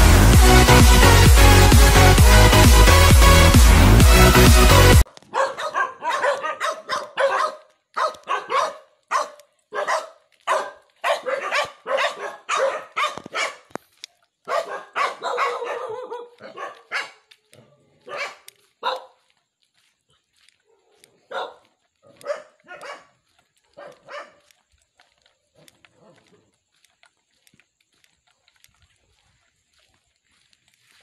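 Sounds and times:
dog barking: 5.1 - 13.7, 14.4 - 19.2, 20.6 - 24.6, 25.6 - 26.6.

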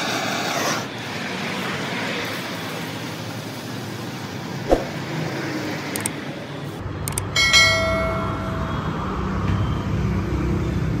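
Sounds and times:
sharp clicks: 7.1 - 7.3
bell chime: 7.4 - 9.1.

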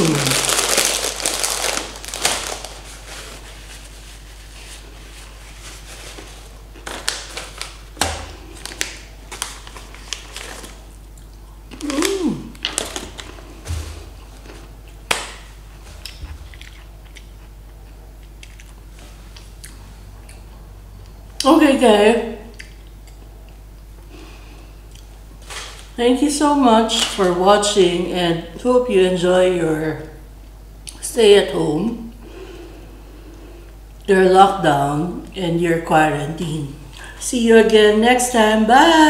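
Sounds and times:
paper snack packet crinkling: 0.0 - 17.6
crunchy chewing: 16.0 - 21.4.

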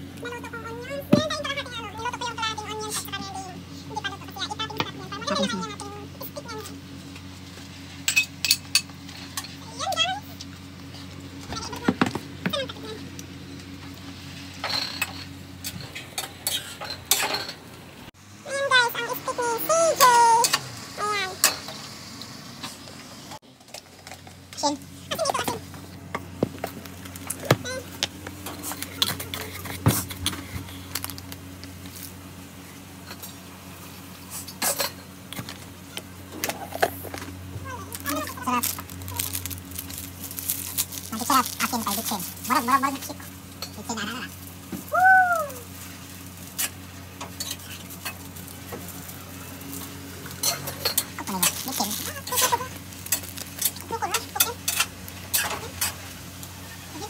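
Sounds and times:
steady low hum: 0.0 - 57.0
cookware and utensils clinking: 14.6 - 17.6, 46.6 - 48.2, 50.3 - 56.0
food sizzling: 37.4 - 57.0.

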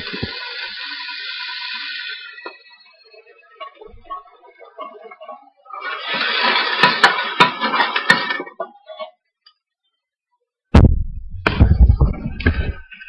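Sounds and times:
onions sizzling in hot oil: 0.0 - 3.1
heavy low thumps: 10.7 - 12.8.

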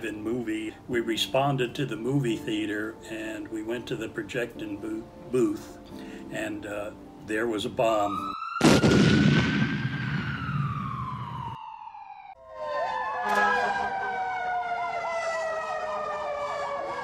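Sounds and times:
emergency vehicle sirens: 7.9 - 17.0
loud blast: 8.6 - 11.4.

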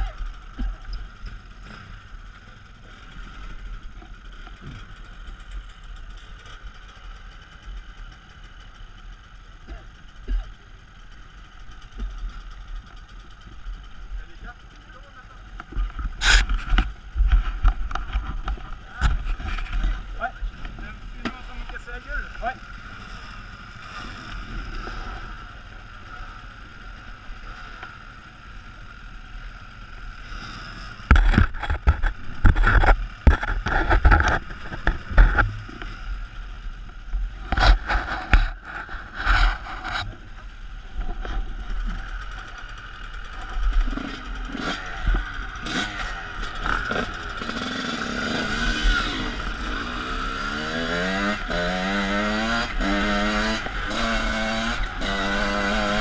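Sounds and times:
dirt bike engine revving: 0.0 - 56.0
dirt bike engines idling: 0.0 - 56.0
knocks and clatter on microphone: 15.6 - 21.8, 31.0 - 35.8, 37.1 - 40.2.

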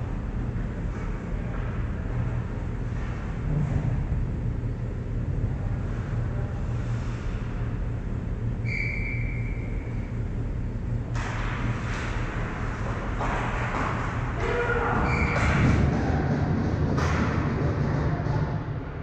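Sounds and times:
ice arena low rumble: 0.0 - 19.0
distant referee's whistle: 8.6 - 10.0.

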